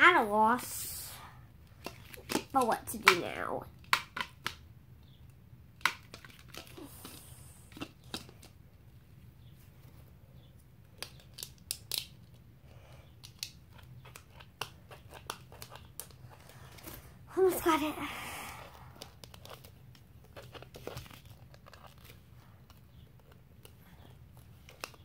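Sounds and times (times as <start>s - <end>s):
plastic and cardboard crinkling: 18.8s - 25.0s.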